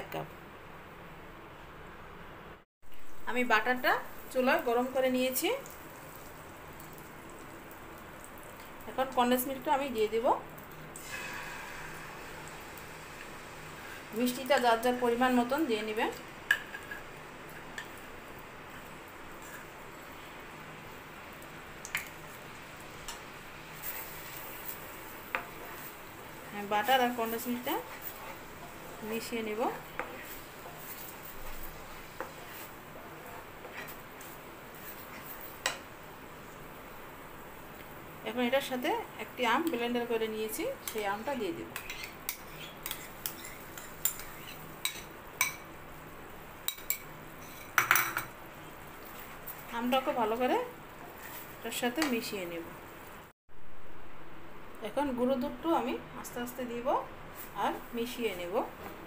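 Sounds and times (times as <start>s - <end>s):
spatula stirring in a pan: 11.0s - 36.8s, 39.5s - 52.3s
utensils clicking on a pan: 40.8s - 41.1s, 41.8s - 45.6s, 46.6s - 48.3s
spatula scraping bowl: 41.7s - 45.0s.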